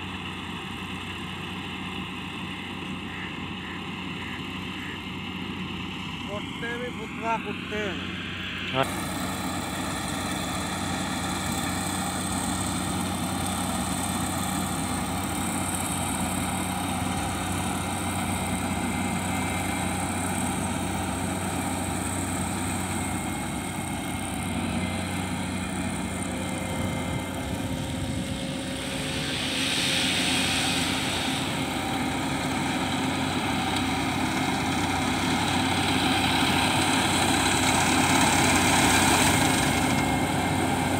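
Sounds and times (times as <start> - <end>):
combine harvester engine hum: 0.0 - 40.9
hiss: 8.2 - 23.6, 25.6 - 40.9.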